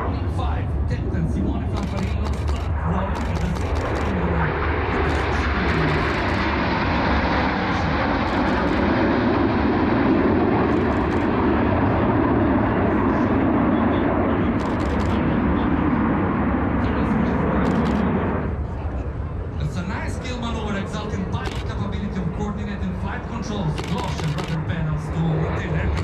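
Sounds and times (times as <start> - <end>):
jets flying overhead: 0.0 - 26.0.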